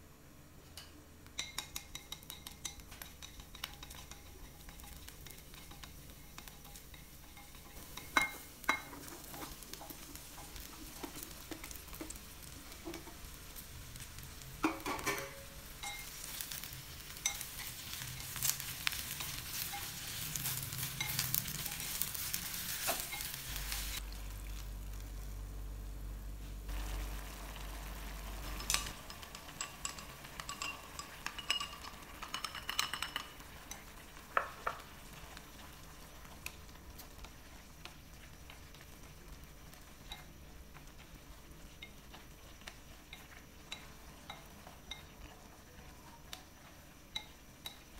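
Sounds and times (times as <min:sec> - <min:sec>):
food sizzling in hot oil: 0:01.3 - 0:47.9
wooden utensils knocking on pot: 0:14.6 - 0:16.1, 0:28.4 - 0:34.8.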